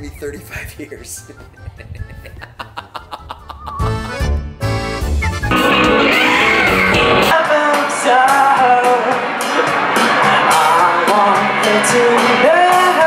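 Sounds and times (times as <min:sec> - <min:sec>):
deep bass: 0:03.8 - 0:07.3
drums with cymbal hits: 0:05.5 - 0:13.0
electric guitar: 0:05.5 - 0:13.0
person singing: 0:05.5 - 0:13.0.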